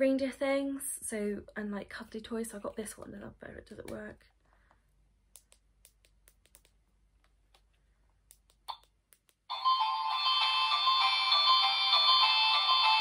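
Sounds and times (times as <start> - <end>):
toy playing thin electronic tune: 9.5 - 13.0.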